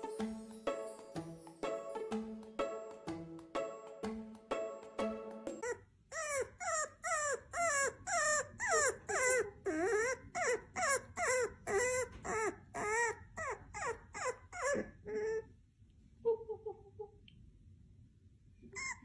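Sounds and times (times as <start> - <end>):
puppy whimpering yelps: 5.6 - 15.5, 18.6 - 19.0.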